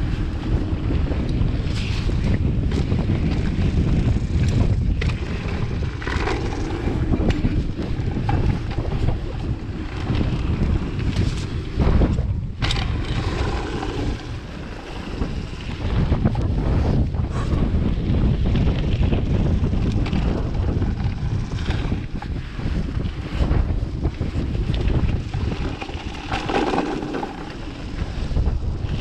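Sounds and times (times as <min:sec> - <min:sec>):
mountain bike rumbling on dirt: 0:00.0 - 0:29.0
wind buffeting microphone: 0:00.0 - 0:29.0
clicks and rattles: 0:24.7 - 0:27.9.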